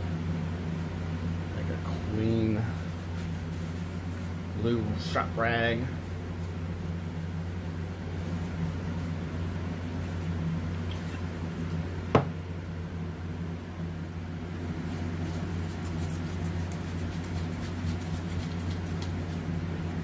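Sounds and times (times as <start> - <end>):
low mechanical hum: 0.0 - 20.0
rag rubbing painted panel: 15.0 - 19.4.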